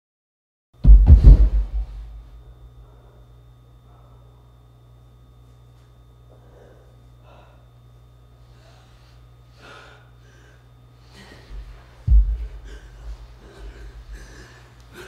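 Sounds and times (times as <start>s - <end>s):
body thud on rug: 0.9s - 2.1s
person gasping and breathing hard: 12.2s - 15.0s.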